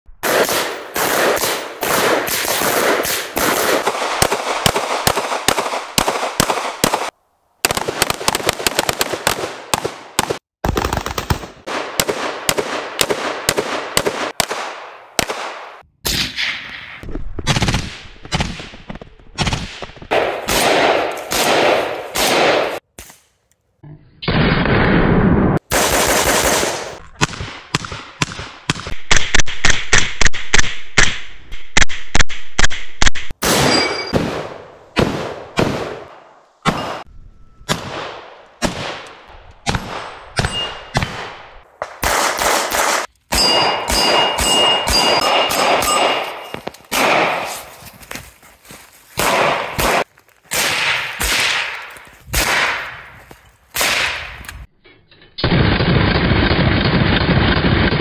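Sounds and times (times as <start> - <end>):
rapid gunfire: 0.2 - 15.8, 19.4 - 22.8, 25.6 - 31.1, 41.0 - 46.3, 46.9 - 47.6.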